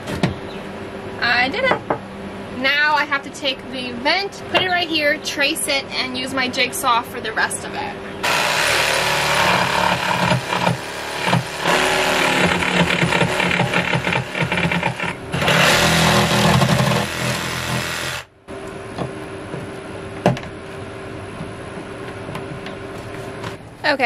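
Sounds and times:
jigsaw cutting wood: 8.2 - 18.3.

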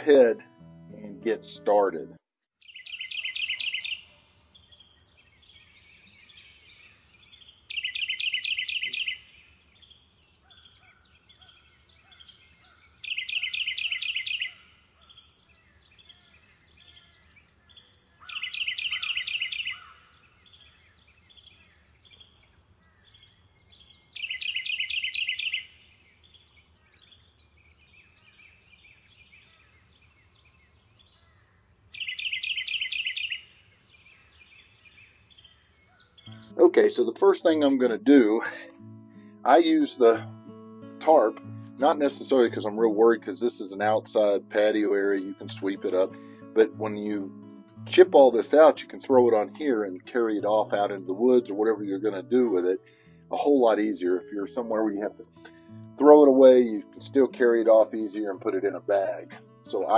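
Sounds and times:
faint bird calls: 2.6 - 36.6
songbird trilling: 2.6 - 38.6.

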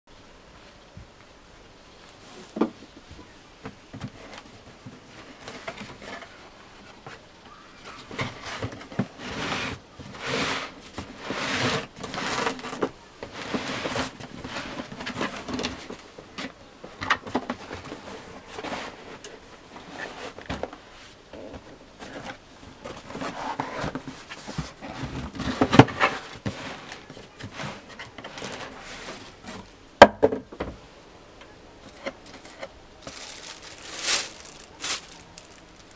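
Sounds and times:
cardboard scraping and rustling: 4.0 - 7.2, 7.8 - 29.7, 31.9 - 35.9.

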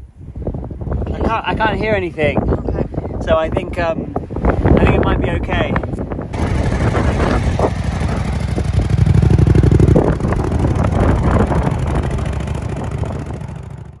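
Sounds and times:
motorcycle engine revving: 6.4 - 14.0
wheel spinning in sand: 6.4 - 14.0.

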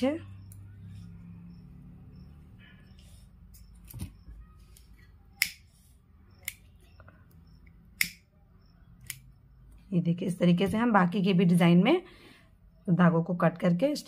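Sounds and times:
sharp scissor clicks: 5.4 - 5.6, 8.0 - 8.2, 9.0 - 9.3.

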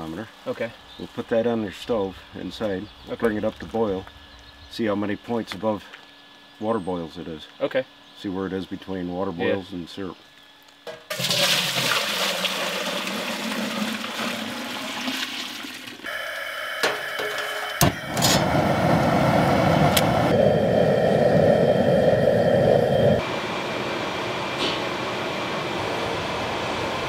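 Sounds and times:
running splashing water: 11.1 - 16.1.

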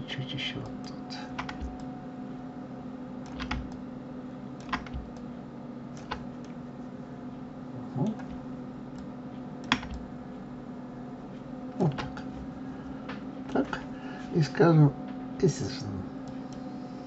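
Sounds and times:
steady low hum: 0.0 - 17.0
keyboard and mouse clicks: 0.8 - 1.9, 3.3 - 3.8, 4.6 - 5.3, 5.9 - 6.6, 8.0 - 10.1, 11.8 - 12.3.

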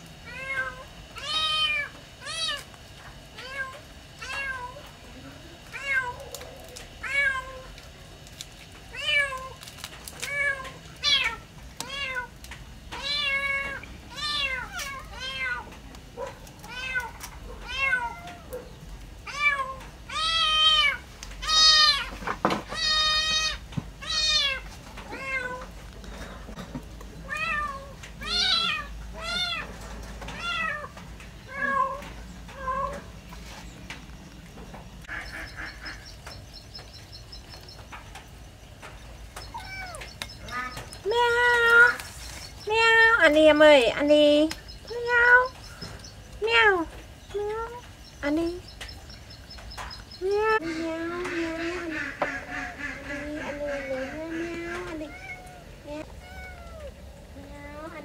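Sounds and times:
kittens meowing: 27.2 - 29.7, 39.4 - 42.0, 54.7 - 57.0.

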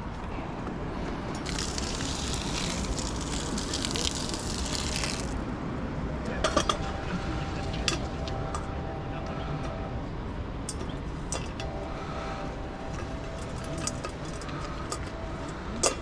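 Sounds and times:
hot water splashing onto dirt: 1.4 - 5.4.

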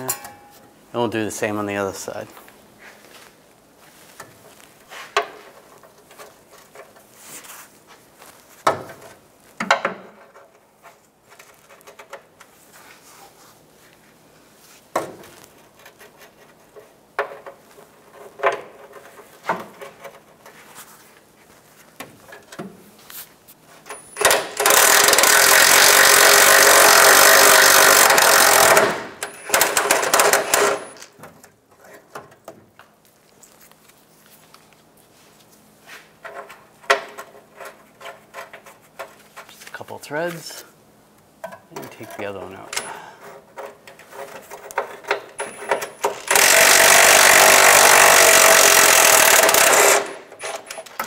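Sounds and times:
cordless impact wrench running: 24.2 - 31.0, 45.4 - 50.7
hand ratchet clicking: 24.2 - 31.1, 44.7 - 50.7.

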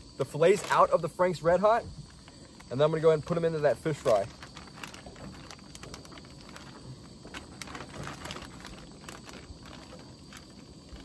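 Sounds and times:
plastic bag crinkling: 3.2 - 11.0.

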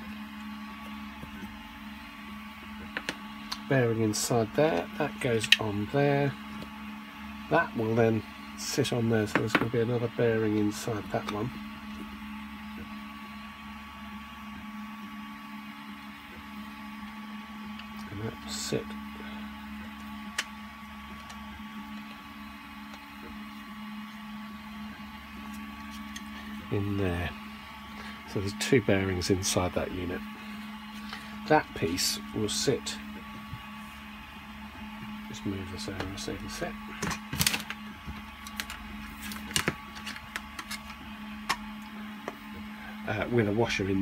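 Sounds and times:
steady low hum: 0.0 - 44.0
plastic parts clicking and knocking: 37.0 - 41.6.

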